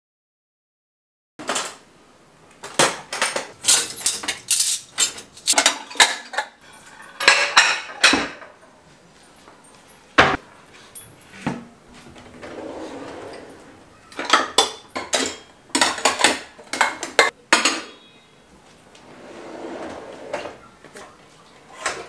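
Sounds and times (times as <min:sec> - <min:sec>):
plates and cutlery clattering: 0:02.6 - 0:08.6, 0:12.4 - 0:18.2, 0:21.7 - 0:22.0.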